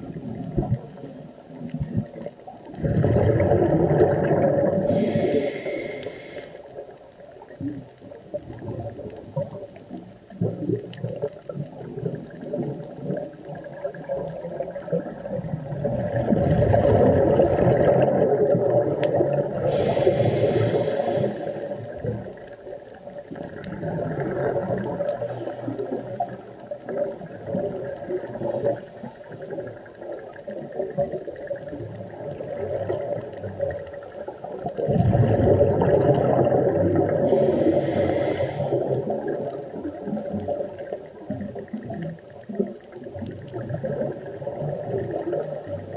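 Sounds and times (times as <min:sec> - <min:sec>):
scuba regulator bubbles gurgling: 0:00.0 - 0:45.9
regulator hiss: 0:04.9 - 0:06.7, 0:19.6 - 0:22.0, 0:37.3 - 0:39.1.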